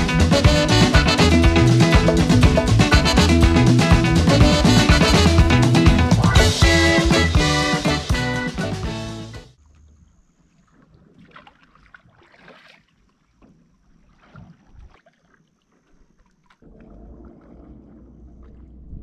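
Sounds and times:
paddle strokes splashing water: 9.6 - 18.9.

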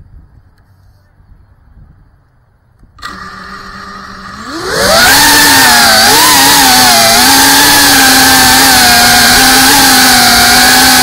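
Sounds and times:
drone motors whining: 3.0 - 11.0.

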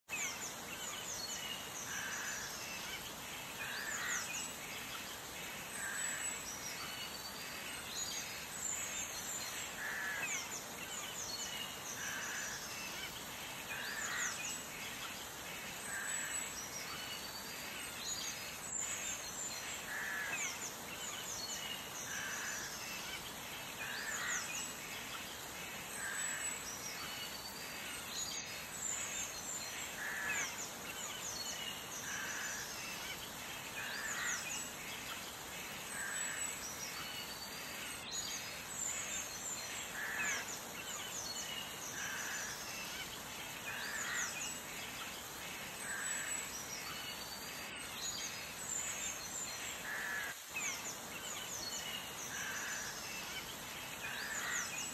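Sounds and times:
steady hiss: 0.1 - 54.9.

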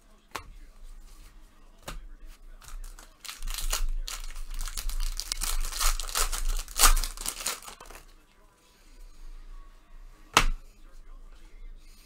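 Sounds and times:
plastic packaging crinkling: 2.6 - 8.0.

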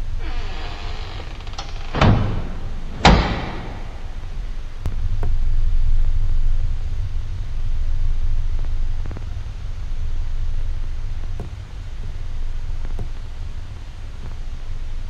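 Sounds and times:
steady low rumble: 0.0 - 15.0
heavy ringing thud: 2.0 - 4.4.

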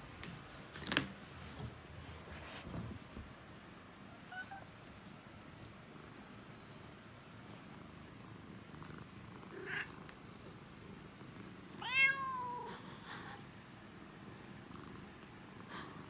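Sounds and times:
cat meowing: 4.3 - 4.7, 9.6 - 9.9, 11.8 - 12.7
cat purring: 5.7 - 11.8, 12.9 - 16.0.

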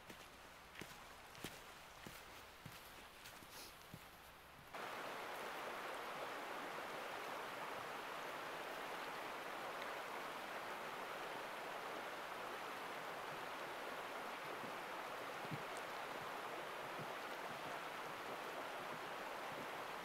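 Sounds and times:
stream rushing over rocks: 4.7 - 20.0.

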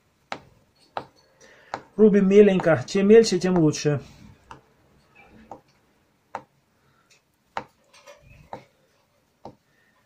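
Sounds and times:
knife chopping on cutting board: 0.3 - 1.1.

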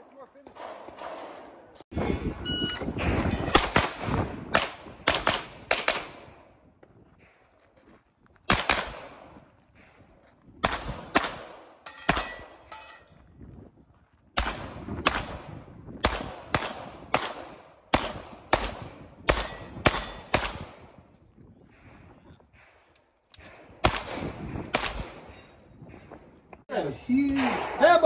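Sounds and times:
pistol shots: 3.5 - 6.4, 8.5 - 9.4, 10.6 - 12.4, 14.4 - 20.9, 23.6 - 25.3.

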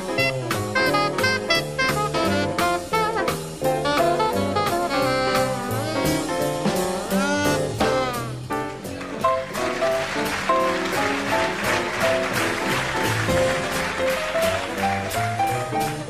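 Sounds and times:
alto saxophone melody: 0.0 - 8.8
drum kit keeping time: 0.0 - 16.0
plucked upright bass: 0.0 - 16.0.

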